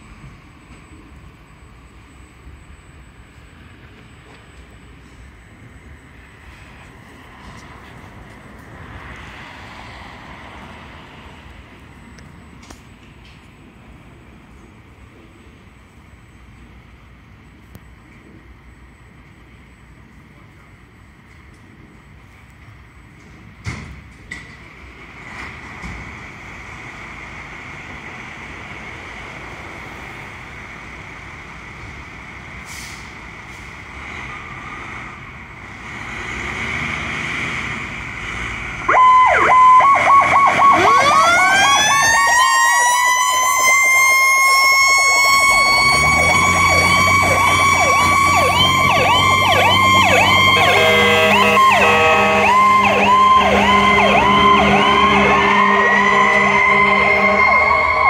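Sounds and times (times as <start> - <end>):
wailing sirens: 0.0 - 14.0, 37.9 - 58.0
emergency vehicle engines: 0.0 - 58.0
yelping sirens: 38.7 - 58.0
low horn tones: 45.0 - 58.0.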